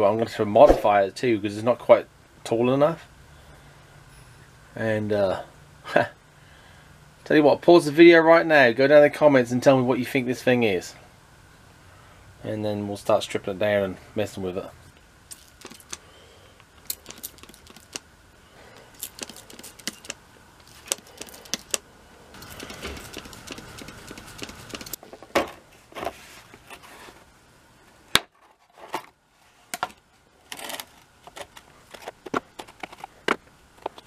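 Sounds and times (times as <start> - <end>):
plastic tool case rattling: 30.6 - 34.0.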